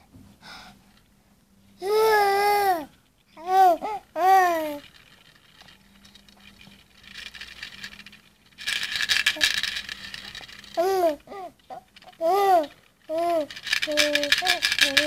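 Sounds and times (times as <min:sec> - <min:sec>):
baby babbling and cooing: 0:01.8 - 0:04.8, 0:10.8 - 0:15.0.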